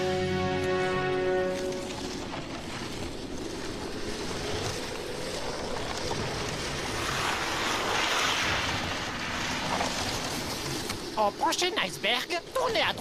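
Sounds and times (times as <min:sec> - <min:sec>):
sea waves: 0:00.0 - 0:13.0
wind: 0:00.0 - 0:13.0.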